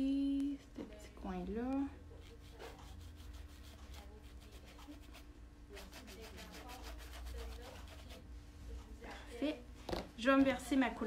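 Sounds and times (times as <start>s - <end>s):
paintbrush scratching on surface: 2.1s - 8.8s.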